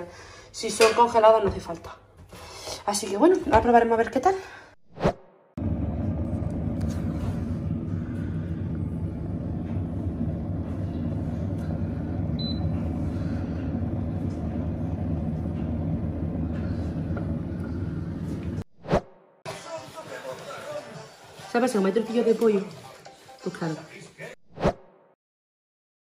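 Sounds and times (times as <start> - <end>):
air fryer fan humming: 5.6 - 18.6.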